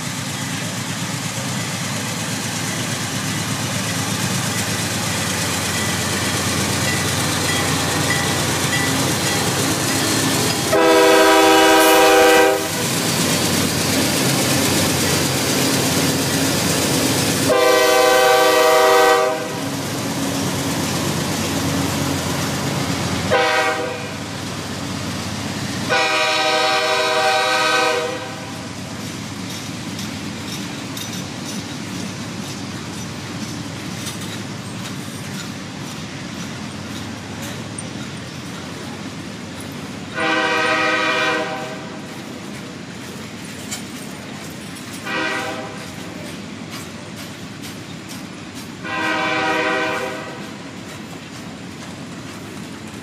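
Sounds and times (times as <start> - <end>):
locomotive engine and wheel noise: 0.0 - 53.0
train horn blasts: 10.6 - 12.8, 17.5 - 19.6, 23.3 - 24.3, 25.9 - 28.6, 40.1 - 42.0, 45.0 - 45.9, 48.8 - 50.7.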